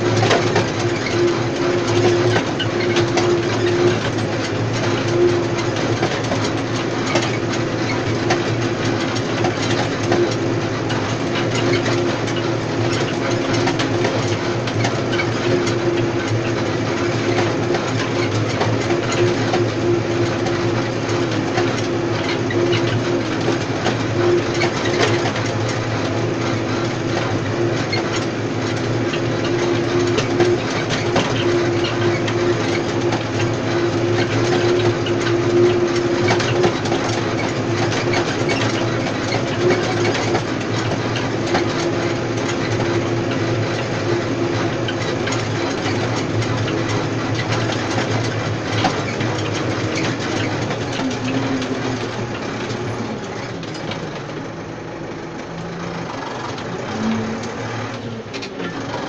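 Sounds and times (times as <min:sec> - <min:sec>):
tractor engine under load: 0:00.0 - 0:59.0.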